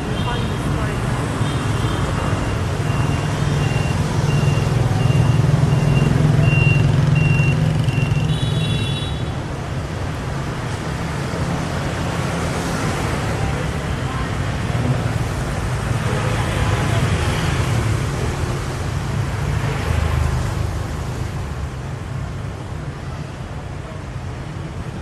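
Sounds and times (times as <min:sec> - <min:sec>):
short electronic beeps: 0:02.5 - 0:08.3.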